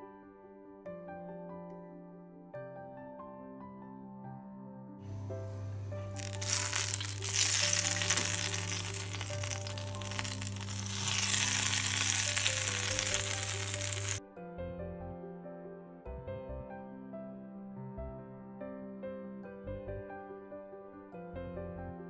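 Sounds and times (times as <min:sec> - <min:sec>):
background music: 0:00.0 - 0:22.0
hot oil sizzling: 0:06.0 - 0:14.2.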